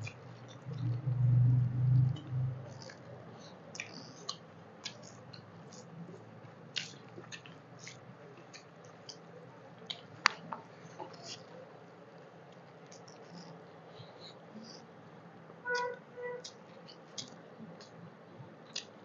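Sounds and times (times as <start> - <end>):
wet chewing and lip smacks: 3.7 - 5.9, 6.8 - 9.2, 16.4 - 18.0, 18.7 - 19.0.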